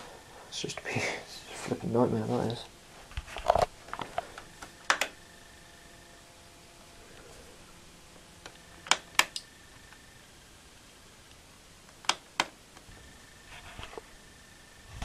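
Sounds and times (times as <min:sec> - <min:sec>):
faint room noise: 0:00.0 - 0:15.0
sharp clicks: 0:03.5 - 0:05.2, 0:08.4 - 0:10.0, 0:11.3 - 0:12.9.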